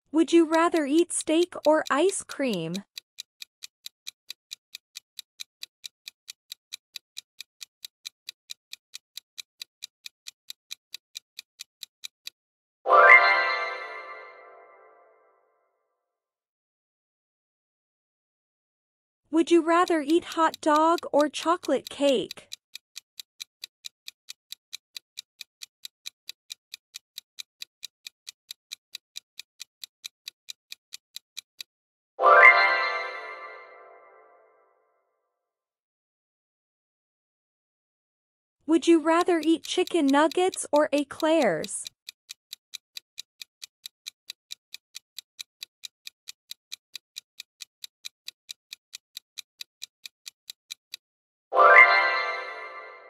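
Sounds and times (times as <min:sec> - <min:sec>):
clock ticking: 0:00.1 - 0:12.4, 0:19.4 - 0:31.7, 0:38.7 - 0:51.0.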